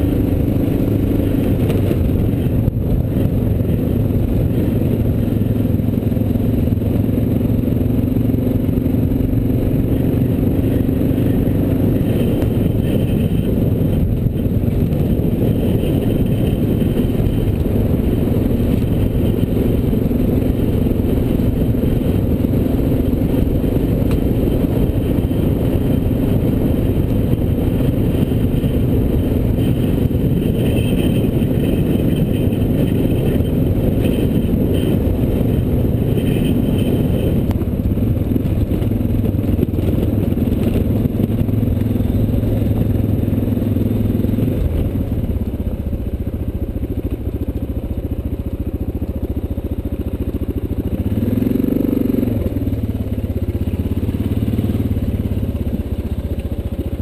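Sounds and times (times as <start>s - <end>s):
wind noise: 0.0s - 47.6s
motorcycle engine running: 0.0s - 57.0s.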